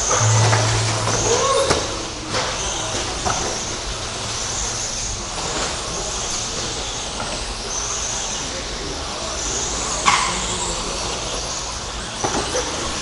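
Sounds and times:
high motor whines: 0:00.0 - 0:02.5.

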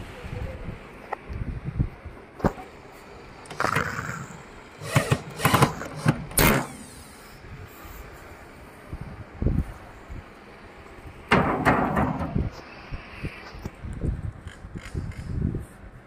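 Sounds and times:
electric drill driving screws: 0:03.6 - 0:07.3
metal grille clatter: 0:11.3 - 0:12.5.

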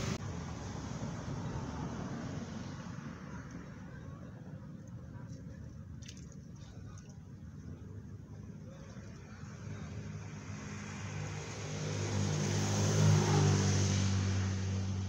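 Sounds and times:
vehicle driving past: 0:00.0 - 0:03.3, 0:09.6 - 0:15.0.

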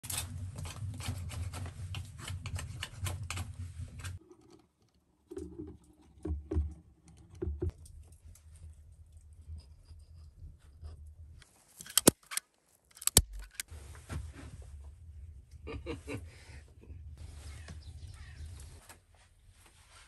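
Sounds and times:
low rumble: 0:00.0 - 0:04.2, 0:13.2 - 0:18.8
wood fire crackling and popping: 0:00.0 - 0:04.2.

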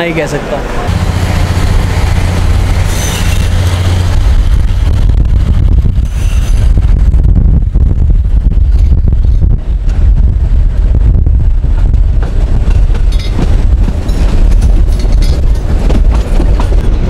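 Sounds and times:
passenger train noise: 0:00.0 - 0:17.0
wind buffeting microphone: 0:00.9 - 0:17.0.

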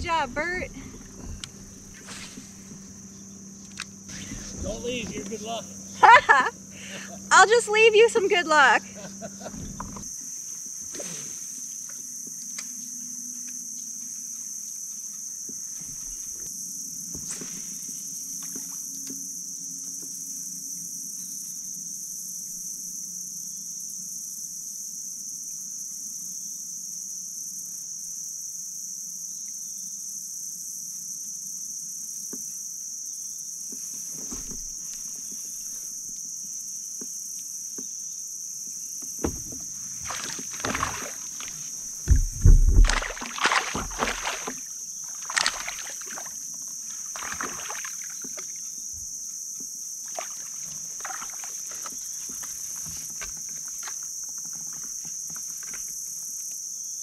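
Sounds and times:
high-pitched insect chorus: 0:00.0 - 0:57.0
knocks on a kayak: 0:39.2 - 0:44.6
water splashes: 0:39.2 - 0:48.6, 0:50.0 - 0:52.0.

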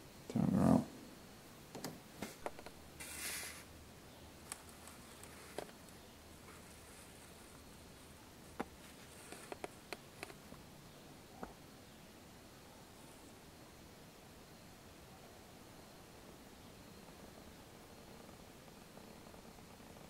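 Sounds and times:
faint low hum: 0:00.0 - 0:20.0
short rustle: 0:03.0 - 0:03.7.

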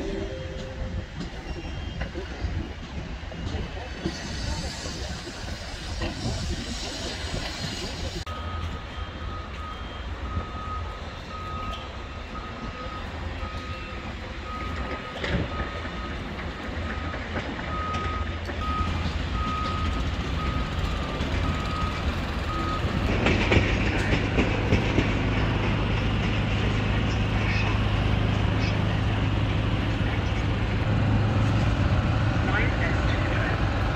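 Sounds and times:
reversing alarm beeping: 0:00.0 - 0:02.0, 0:08.3 - 0:24.1
rushing noise: 0:00.0 - 0:09.2.

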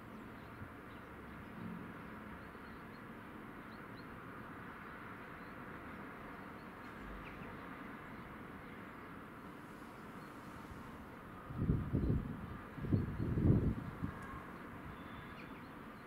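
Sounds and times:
distant traffic hum: 0:00.0 - 0:16.0
faint bird chirps: 0:14.0 - 0:16.0.

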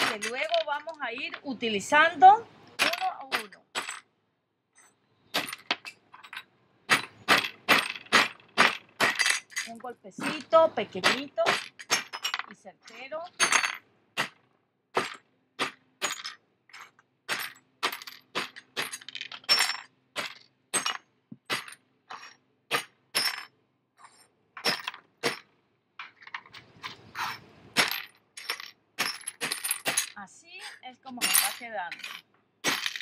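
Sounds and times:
ceramic shards rustling: 0:00.0 - 0:01.4, 0:09.0 - 0:10.7, 0:26.0 - 0:33.0
hammer breaking ceramic: 0:22.7 - 0:23.5, 0:31.2 - 0:33.0.

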